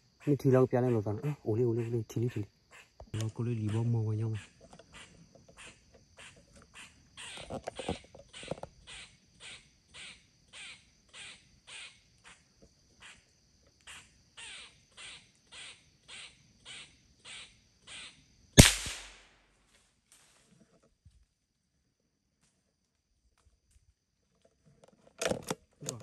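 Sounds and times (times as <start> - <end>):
gunshot echoing: 18.6 - 19.4.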